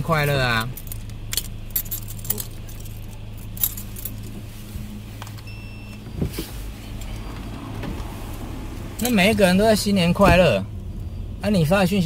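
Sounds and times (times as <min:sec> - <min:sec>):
car idling hum: 0:00.0 - 0:12.0
keys jangling: 0:00.2 - 0:04.3.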